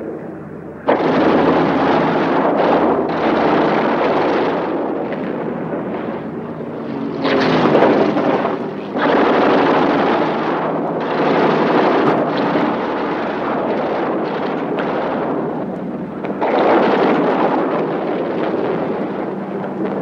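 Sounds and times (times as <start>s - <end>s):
fighter jet engine noise: 0.0s - 20.0s
explosions: 0.8s - 20.0s.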